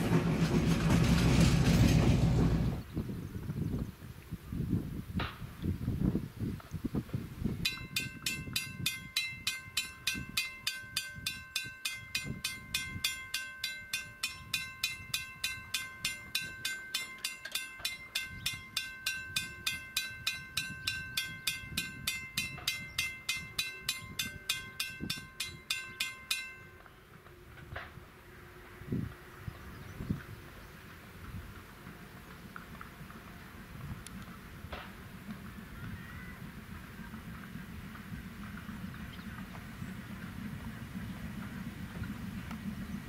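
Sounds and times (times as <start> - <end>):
steam locomotive rumbling: 0.0 - 3.6, 7.0 - 43.0
railroad bell ringing: 7.6 - 27.1.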